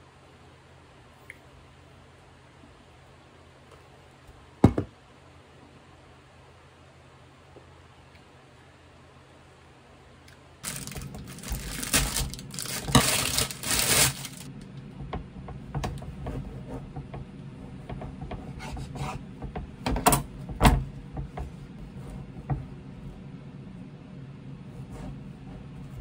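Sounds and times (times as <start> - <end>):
plastic bag crinkling: 10.6 - 14.5.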